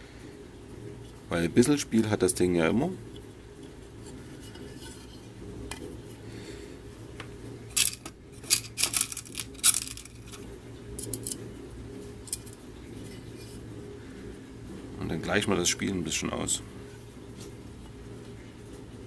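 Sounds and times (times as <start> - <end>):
low steady hum: 0.0 - 19.0
metal washers clinking in plastic box: 7.7 - 10.4.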